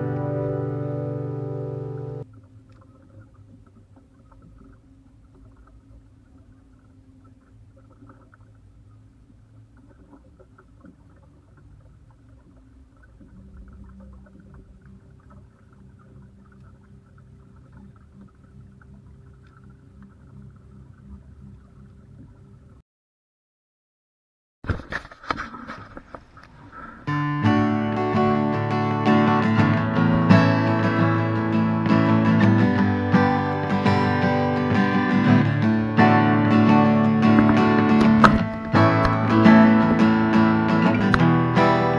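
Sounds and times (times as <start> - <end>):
acoustic guitar strumming: 0.0 - 2.2, 27.1 - 41.9
small boat motor humming: 0.0 - 22.8, 25.8 - 41.9
faint water splashes: 2.2 - 22.8, 27.9 - 41.9
faint light ticks: 9.8 - 22.4.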